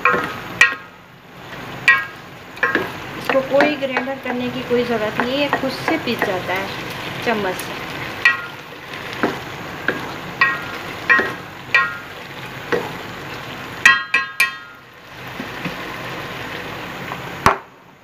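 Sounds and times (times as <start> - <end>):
spoon clinking against pot: 13.9 - 14.7.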